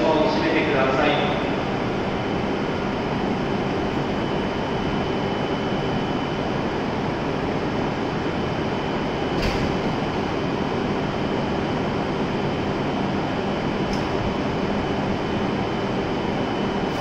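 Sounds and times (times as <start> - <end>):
train air-conditioning hum: 0.0 - 17.0.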